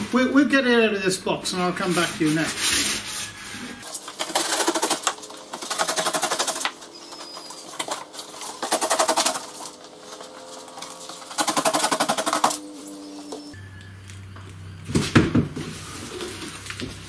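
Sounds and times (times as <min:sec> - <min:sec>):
cardboard and polystyrene rubbing: 0:01.5 - 0:13.0, 0:15.5 - 0:17.0
polystyrene squeaks: 0:01.8 - 0:11.4, 0:15.6 - 0:17.0.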